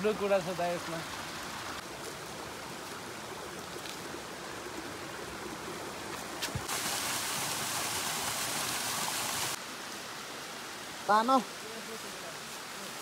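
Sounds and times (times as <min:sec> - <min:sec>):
mountain stream rushing: 0:00.0 - 0:13.0
waterfall pouring into pool: 0:06.6 - 0:09.6.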